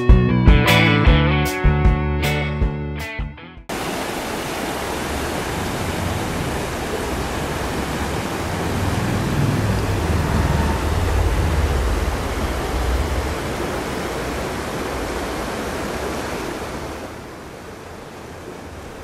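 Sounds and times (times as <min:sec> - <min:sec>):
fast river rushing: 0:03.7 - 0:19.0
wind rumbling on microphone: 0:05.2 - 0:19.0.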